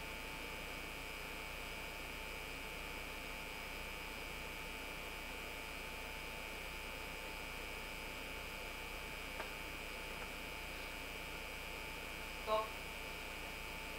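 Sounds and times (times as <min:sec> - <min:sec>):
electrical hum and hiss: 0:00.0 - 0:13.9
thin high whine: 0:10.6 - 0:13.9.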